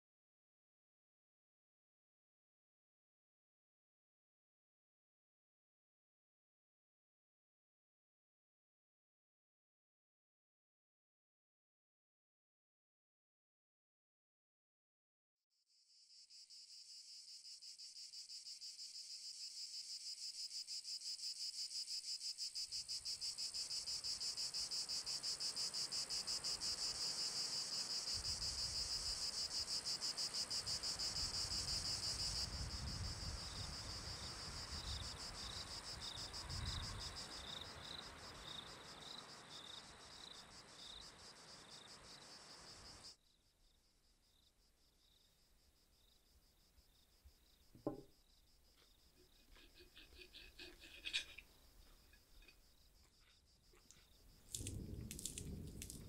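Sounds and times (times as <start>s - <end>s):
cicadas buzzing: 53.8s - 56.0s.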